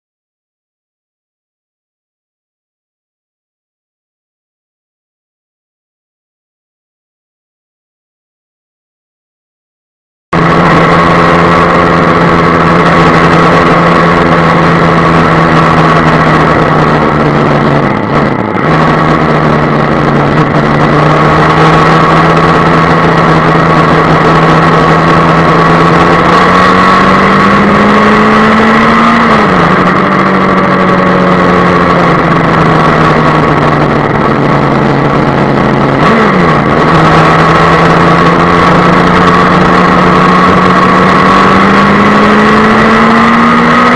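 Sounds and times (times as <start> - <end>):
wind and road noise: 10.3 - 43.9
motorcycle engine cruising: 10.4 - 43.9.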